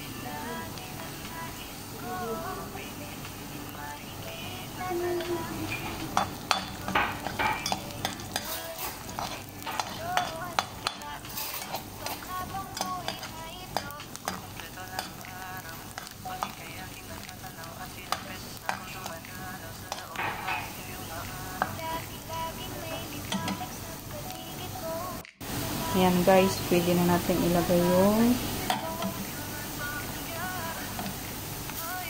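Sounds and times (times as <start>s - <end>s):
onions sizzling in hot oil: 0.0s - 32.0s
metal spoon scraping pan: 5.7s - 14.4s.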